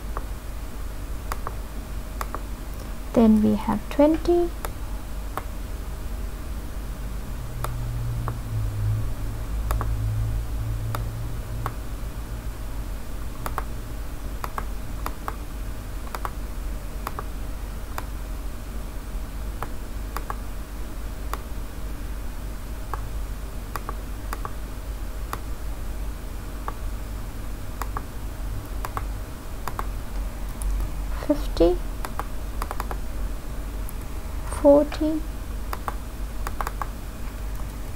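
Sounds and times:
steady low hum: 0.0s - 37.9s
keyboard and mouse clicks: 1.3s - 1.6s, 2.2s - 2.9s, 9.7s - 9.9s, 13.4s - 13.7s, 14.4s - 15.4s, 16.0s - 16.4s, 17.0s - 17.3s, 19.6s - 20.4s, 23.7s - 24.6s, 27.8s - 28.1s, 28.7s - 29.9s, 32.0s - 33.0s, 35.7s - 37.8s.

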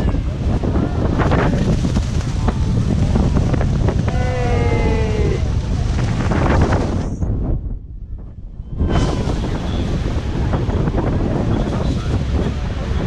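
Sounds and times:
rush of wind and water: 0.0s - 13.0s
wind buffeting microphone: 0.0s - 13.0s
person calling out: 4.1s - 5.4s.

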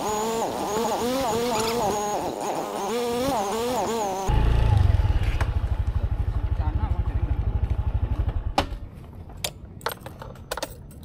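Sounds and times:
motorcycle engine idling: 4.3s - 8.9s.

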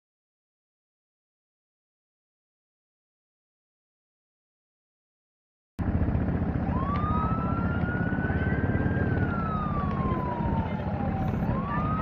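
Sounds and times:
emergency siren wailing: 6.3s - 12.0s.

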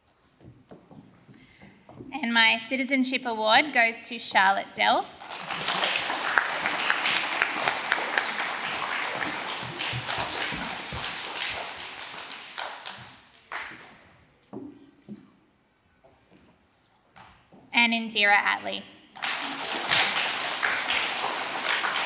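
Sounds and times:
audience applauding: 5.2s - 13.8s, 19.2s - 22.0s.

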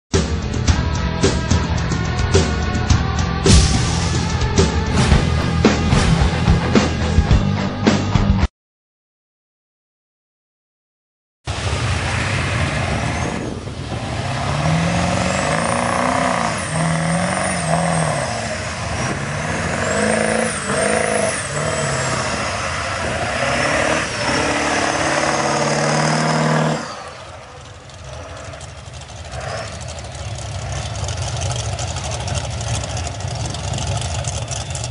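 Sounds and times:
diesel engine revving: 0.2s - 8.4s, 11.5s - 34.9s
high whine: 11.5s - 34.9s.

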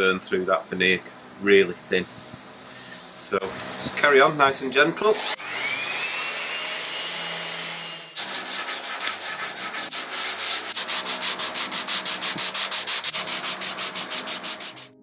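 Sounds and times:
hand sanding wood: 2.1s - 5.0s, 8.2s - 15.0s
orbital sander running: 3.4s - 15.0s.

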